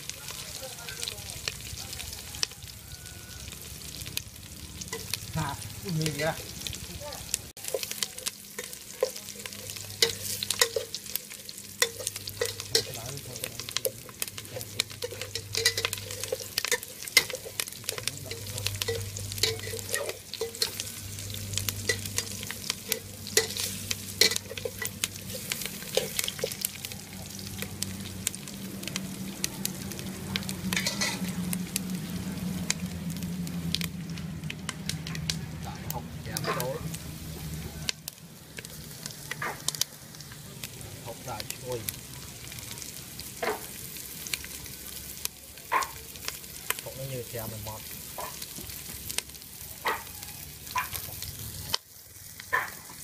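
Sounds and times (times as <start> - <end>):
aromatics sizzling in hot oil: 0.0 - 53.0
metal spatula scraping a pot: 7.7 - 13.0, 13.7 - 26.7, 30.7 - 31.3.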